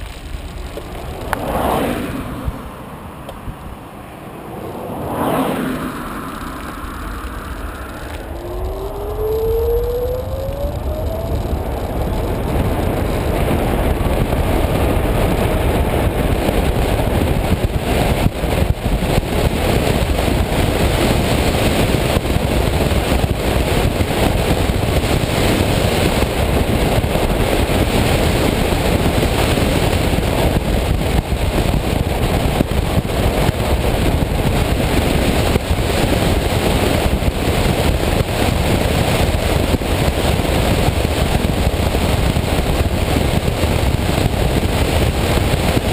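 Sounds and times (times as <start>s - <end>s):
tyre noise on asphalt: 0.0s - 45.9s
wind rushing over camera: 0.0s - 45.9s
electric motor whine: 5.7s - 12.5s.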